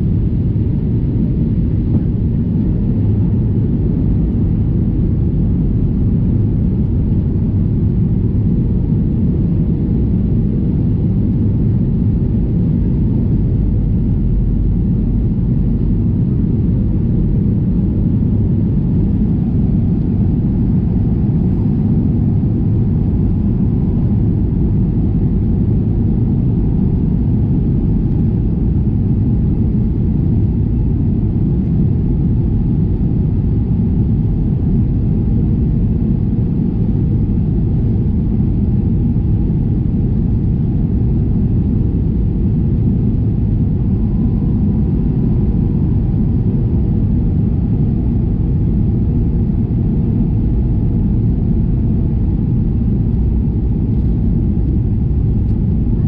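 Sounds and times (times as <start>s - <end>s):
airflow over fuselage: 0.0s - 56.0s
jet engine rumble: 0.0s - 56.0s.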